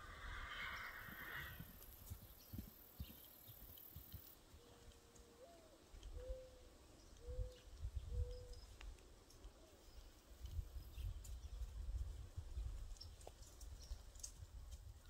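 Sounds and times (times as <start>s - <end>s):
low rumble: 0.0s - 2.1s
dove cooing: 5.4s - 6.6s.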